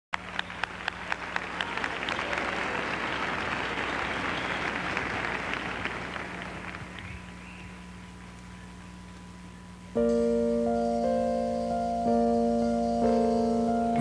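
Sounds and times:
audience applauding: 0:00.2 - 0:07.5
steady low hum: 0:00.2 - 0:14.0.

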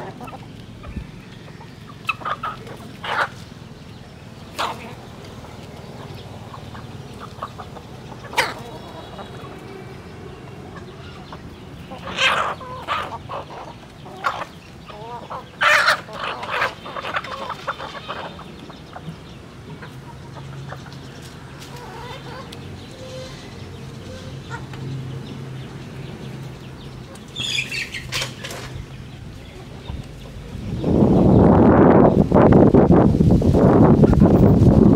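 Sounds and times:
chickens clucking: 0:00.0 - 0:33.1.

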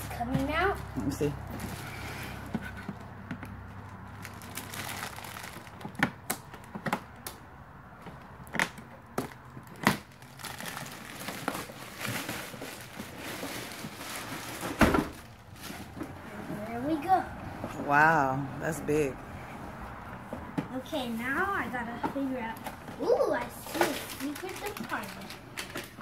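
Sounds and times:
plastic wrap crinkling: 0:03.8 - 0:06.0, 0:09.3 - 0:16.0, 0:23.6 - 0:26.0.

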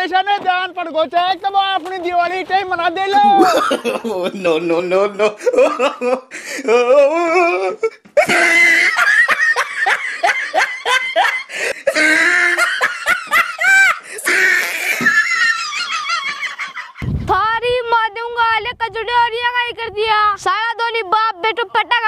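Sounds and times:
hearty human laughter: 0:03.2 - 0:04.4, 0:05.2 - 0:17.1.

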